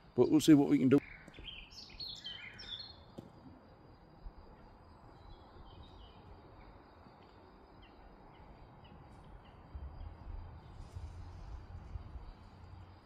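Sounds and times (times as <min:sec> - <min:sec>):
bird chirps: 0:00.6 - 0:03.2, 0:04.5 - 0:11.1.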